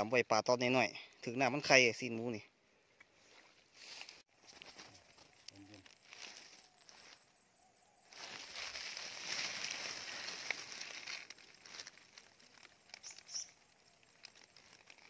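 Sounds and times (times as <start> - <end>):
dry grass rustling and crackling: 3.2 - 7.4, 8.0 - 15.0.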